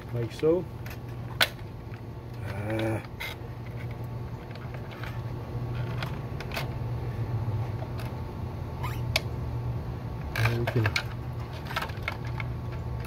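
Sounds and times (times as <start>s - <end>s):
steady low hum: 0.0s - 13.0s
plastic creaking: 2.3s - 6.7s, 10.2s - 12.8s.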